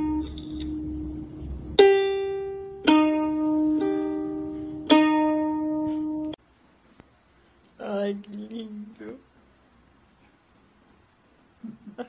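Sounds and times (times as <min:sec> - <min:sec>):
ukulele strings plucked: 0:00.0 - 0:06.4.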